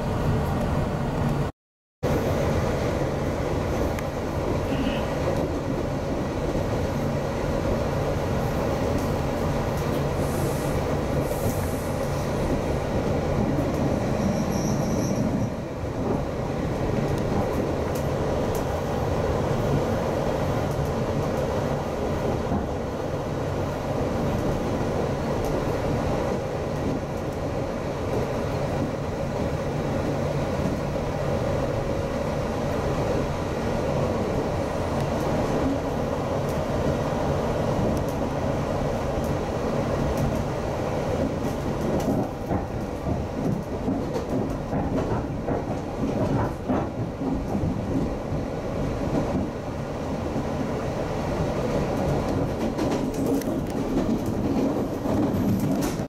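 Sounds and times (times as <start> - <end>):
train running noise from inside: 0.0 - 56.0
faint high squeal: 14.1 - 15.6.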